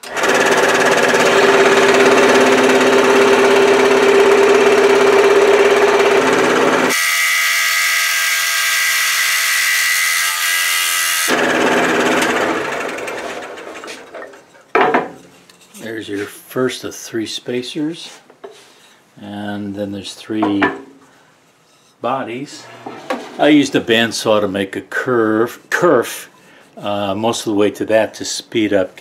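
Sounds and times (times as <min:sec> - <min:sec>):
scroll saw cutting wood: 0:00.0 - 0:14.2, 0:22.5 - 0:24.1.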